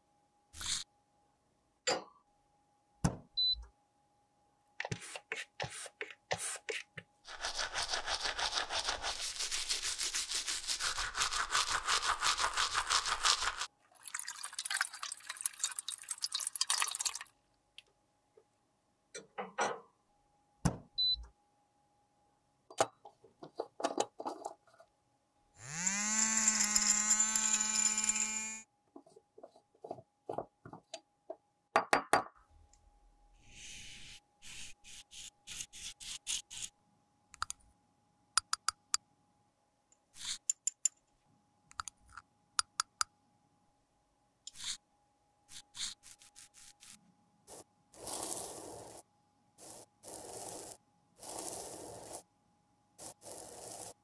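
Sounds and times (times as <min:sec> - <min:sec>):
water pouring: 0:12.4 - 0:17.4
electric grinder motor whining: 0:25.6 - 0:28.6.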